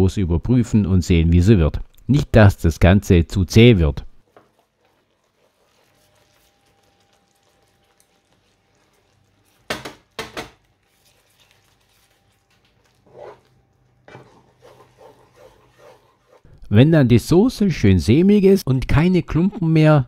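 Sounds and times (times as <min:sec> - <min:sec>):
spatula stirring sauce in a pan: 0:04.2 - 0:16.5
kitchenware knocking on a pan: 0:09.7 - 0:10.6.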